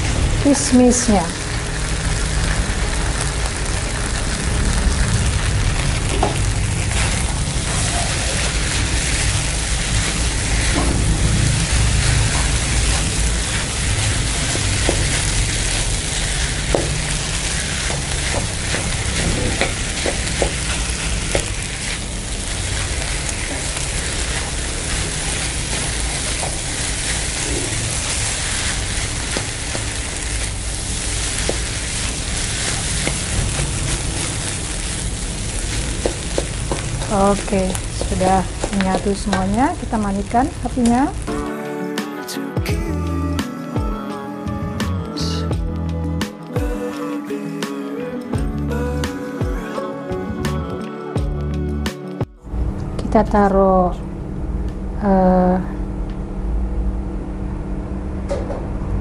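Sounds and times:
rice sizzling in a wok: 0.0 - 41.5.

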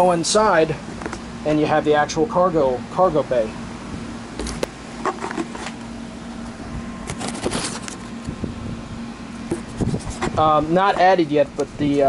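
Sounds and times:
steady low hum: 0.0 - 12.0
light knocks and scrapes: 4.4 - 5.8, 7.1 - 8.0.

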